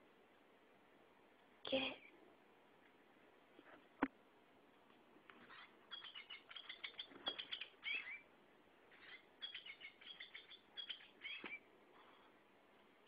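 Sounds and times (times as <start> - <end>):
toy playing recorded bird song: 5.5 - 8.3, 8.9 - 11.6.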